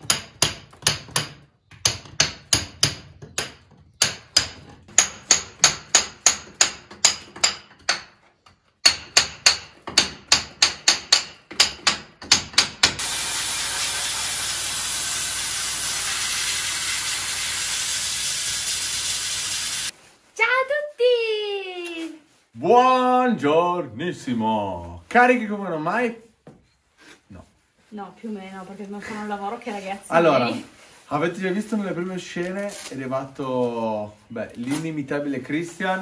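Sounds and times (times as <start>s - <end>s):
sandblaster hissing: 13.0s - 19.9s.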